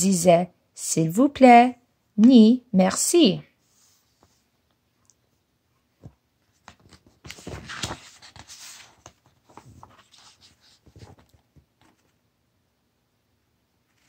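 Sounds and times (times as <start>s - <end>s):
book pages turning: 6.0s - 12.2s
paper rustling: 6.0s - 12.2s.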